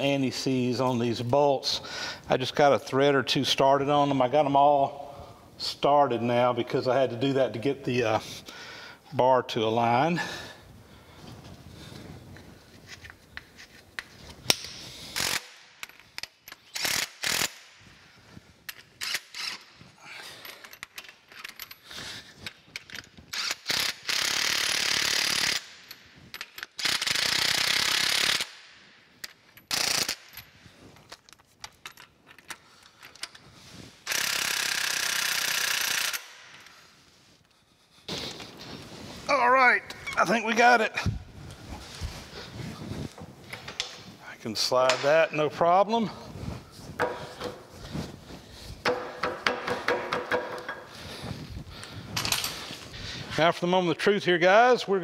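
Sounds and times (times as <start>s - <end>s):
metal tools clicking and clanking: 18.7s - 23.9s, 25.5s - 27.0s, 29.2s - 33.4s.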